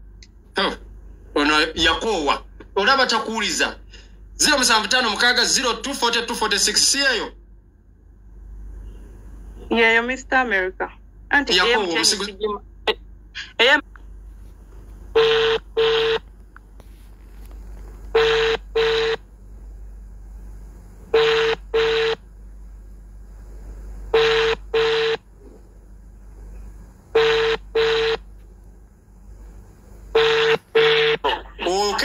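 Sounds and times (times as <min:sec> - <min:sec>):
telephone ringback tone: 0:18.2 - 0:19.2, 0:21.2 - 0:22.2, 0:24.2 - 0:25.2, 0:27.2 - 0:28.2, 0:30.2 - 0:31.1.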